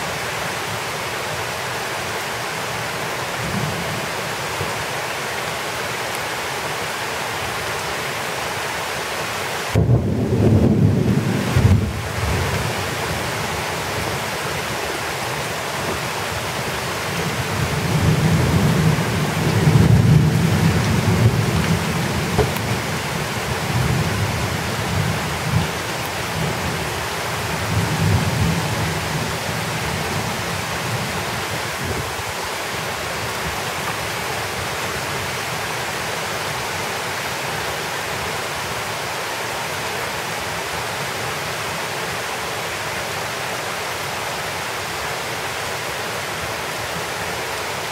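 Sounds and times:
heavy rain pouring: 0:00.0 - 0:47.9
thunder rumbling: 0:09.8 - 0:12.8.

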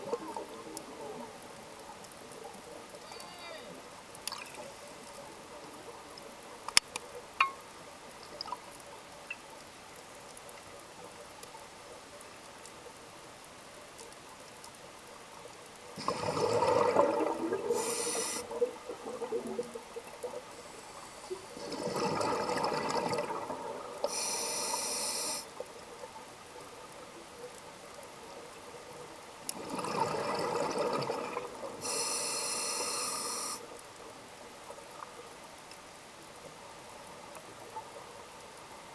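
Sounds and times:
faint clicks: 0:00.0 - 0:16.2, 0:17.0 - 0:38.9
exhaled bubbles underwater: 0:16.0 - 0:20.5, 0:21.3 - 0:24.2, 0:29.5 - 0:32.0
regulator inhale hiss: 0:17.7 - 0:18.6, 0:24.0 - 0:25.6, 0:31.8 - 0:33.7.

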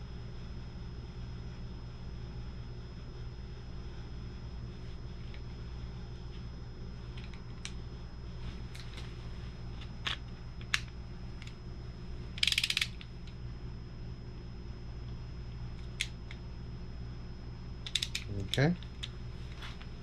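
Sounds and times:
low hum: 0:00.0 - 0:20.0
ratchet wrench clicking: 0:12.4 - 0:13.1, 0:17.9 - 0:19.1
metallic tool clicks: 0:12.4 - 0:13.4, 0:17.8 - 0:19.2.

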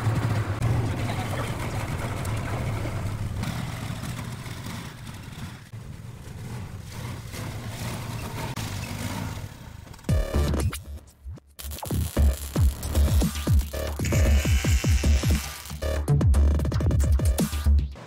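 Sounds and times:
vehicle engine running: 0:00.0 - 0:16.7
electronic music with falling sweep: 0:10.1 - 0:18.0.

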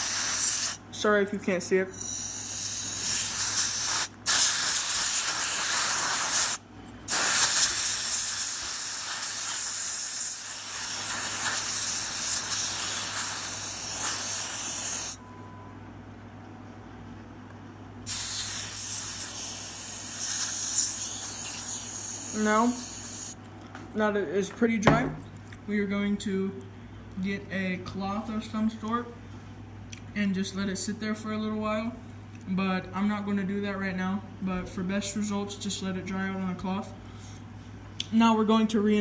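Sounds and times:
compressed air spraying: 0:00.0 - 0:00.8, 0:02.0 - 0:15.2, 0:18.1 - 0:23.4.

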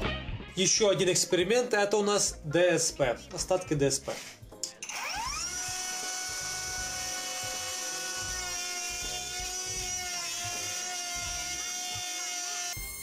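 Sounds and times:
trim router whining: 0:04.8 - 0:13.0.

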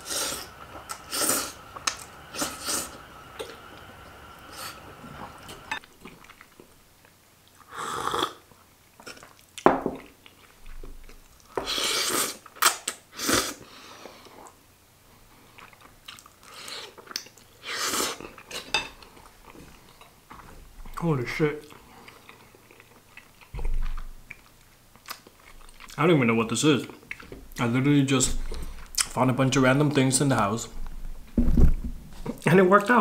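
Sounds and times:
person slurping noodles: 0:00.0 - 0:03.6, 0:07.7 - 0:08.4, 0:11.7 - 0:12.4, 0:13.1 - 0:13.6, 0:17.6 - 0:18.6
person chewing: 0:00.0 - 0:03.9, 0:04.5 - 0:06.7, 0:09.0 - 0:13.6, 0:15.5 - 0:20.1, 0:21.6 - 0:26.0, 0:26.8 - 0:27.4.

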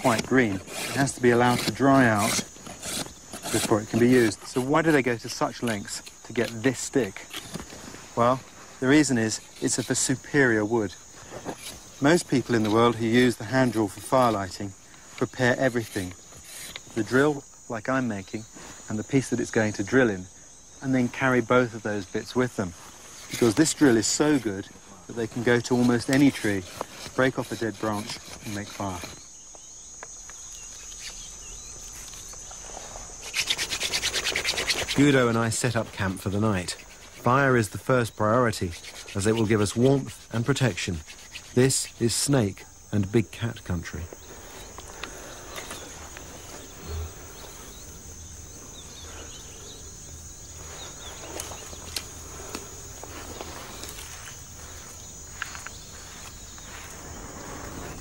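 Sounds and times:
hand drill rubbing wood on wood: 0:00.0 - 0:17.4, 0:22.8 - 0:29.3, 0:31.8 - 0:49.8
insects trilling: 0:00.0 - 0:58.0
dry grass rustling and crackling: 0:50.4 - 0:58.0.

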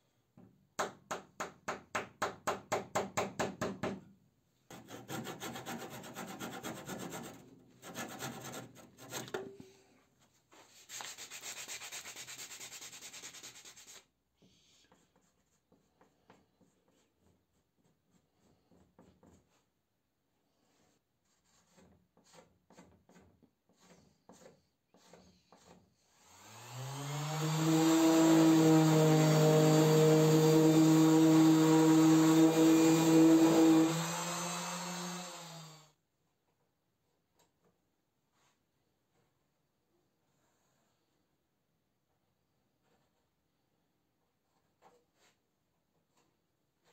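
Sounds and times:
wooden stick scraping wood: 0:04.7 - 0:09.6, 0:20.5 - 0:26.0, 0:44.5 - 0:46.9
electric orbital sander: 0:26.2 - 0:35.9.

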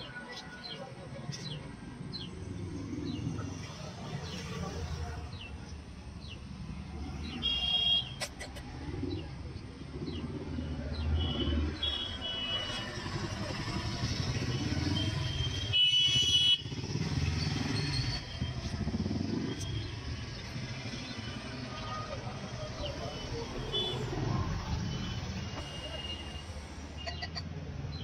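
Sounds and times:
traffic passing: 0:00.0 - 0:28.0
motorcycles passing: 0:00.1 - 0:28.0.

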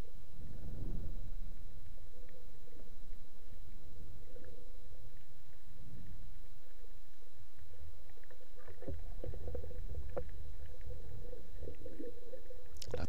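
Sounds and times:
muffled underwater rush: 0:00.3 - 0:02.9.

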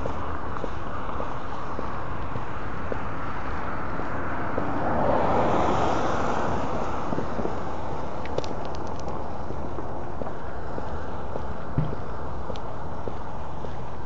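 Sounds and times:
wind rumble on microphone: 0:00.0 - 0:14.0
car driving past: 0:01.0 - 0:08.2.

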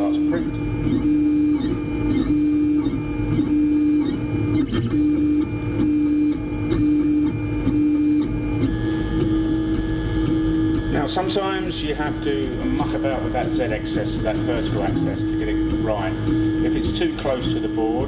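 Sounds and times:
printer stepper motors whining: 0:00.0 - 0:18.0.

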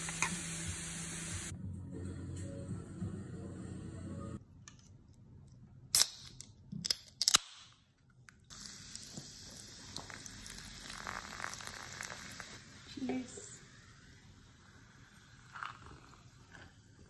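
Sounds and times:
soda hissing: 0:00.0 - 0:01.5, 0:08.5 - 0:17.0
soda can snapping open: 0:05.9 - 0:07.8
fizzing bubbles: 0:08.5 - 0:17.0
soda pouring into glass: 0:08.6 - 0:12.9, 0:13.6 - 0:17.0.

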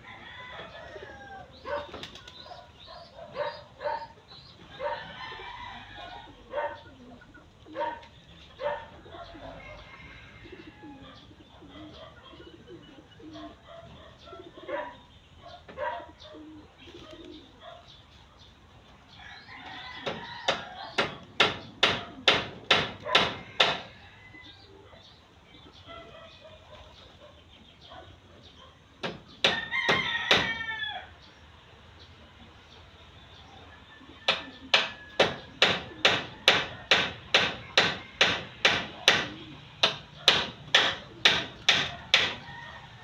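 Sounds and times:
soft chicken clucks: 0:00.0 - 0:22.2
chickens calling: 0:00.0 - 0:43.0.

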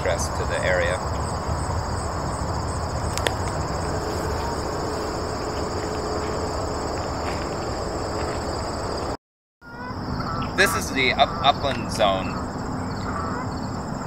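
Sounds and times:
steady low rumble: 0:00.0 - 0:09.2
crickets chirping: 0:00.0 - 0:14.0.

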